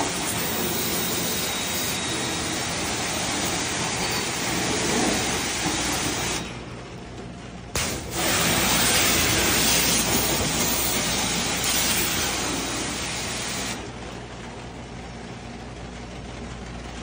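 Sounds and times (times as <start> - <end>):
pressure washer spray hiss: 0.0 - 6.5, 7.8 - 13.8
pump motor humming: 0.0 - 6.7, 7.8 - 14.1.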